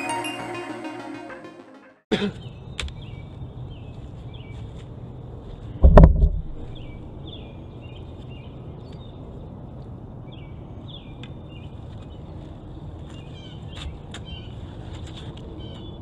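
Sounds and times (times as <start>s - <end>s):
low outdoor rumble: 3.2s - 10.8s.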